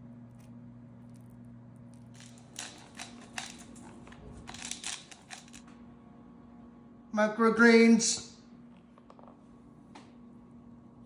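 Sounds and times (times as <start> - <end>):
faint low hum: 0.0 - 7.2.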